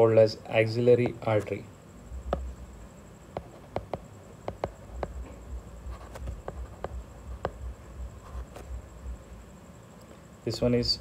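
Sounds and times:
stylus tapping on tablet screen: 0:02.3 - 0:02.6, 0:03.4 - 0:05.3, 0:06.0 - 0:07.7.

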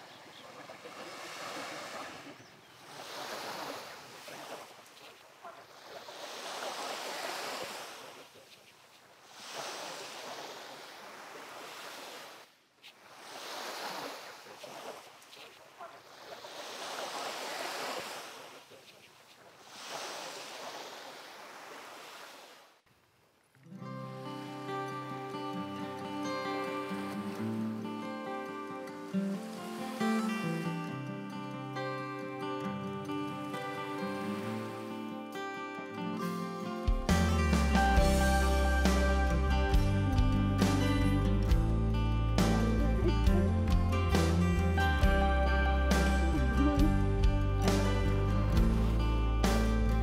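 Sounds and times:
small waves breaking on shore: 0:00.0 - 0:41.6.

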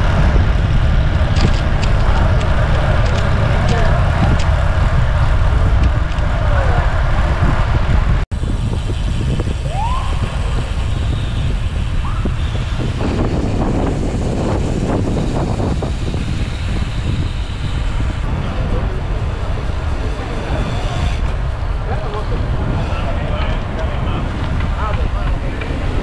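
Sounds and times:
low wind rumble on microphone: 0:00.0 - 0:26.0
road traffic noise: 0:00.0 - 0:26.0
short rising squeaks: 0:19.9 - 0:23.0.

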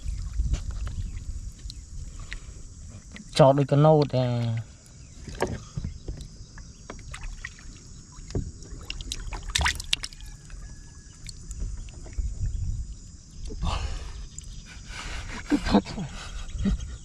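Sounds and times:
water splashing in plastic tub: 0:06.9 - 0:10.4.

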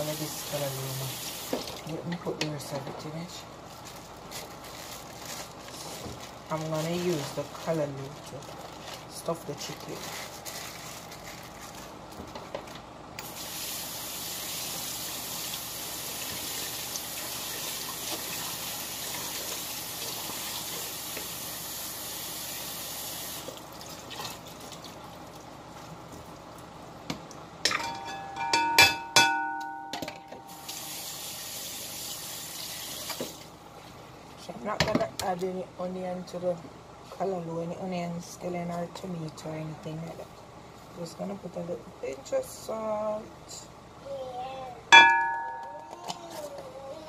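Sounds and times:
metal bowl clanking: 0:27.7 - 0:30.6, 0:45.0 - 0:46.0.

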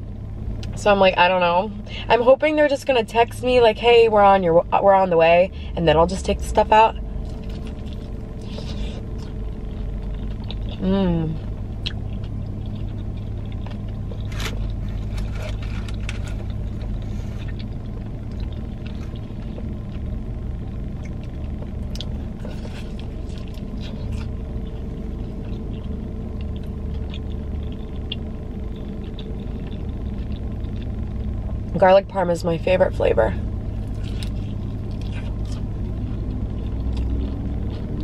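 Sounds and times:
car engine idling: 0:00.0 - 0:38.0
chewing and crunching food: 0:07.0 - 0:31.7, 0:33.4 - 0:38.0.

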